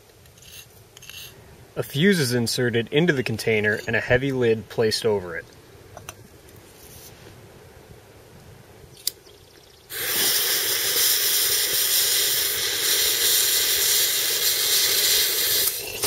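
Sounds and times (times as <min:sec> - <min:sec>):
fuse burning with sputtering hiss: 0:08.4 - 0:16.0.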